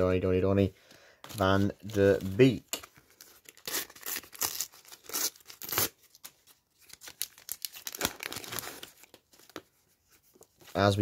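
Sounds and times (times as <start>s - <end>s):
wrapper ripping: 3.4s - 9.1s.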